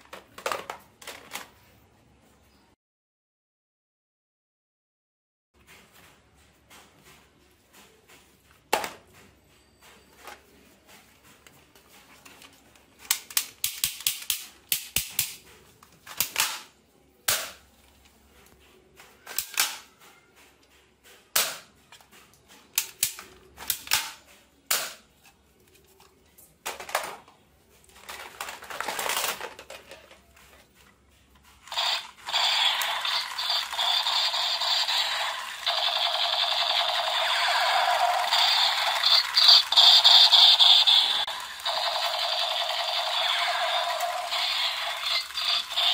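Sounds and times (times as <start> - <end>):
plastic toy gun clicks: 13.1 - 15.4, 16.1 - 16.7, 19.3 - 19.9, 22.8 - 25.0
electronic toy pistol firing sound: 31.7 - 45.9.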